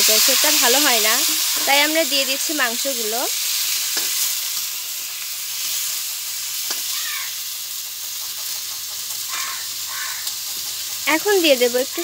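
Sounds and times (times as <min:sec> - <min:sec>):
metal spatula scraping pan: 0:00.0 - 0:02.8
chicken sizzling in hot oil: 0:00.0 - 0:12.0.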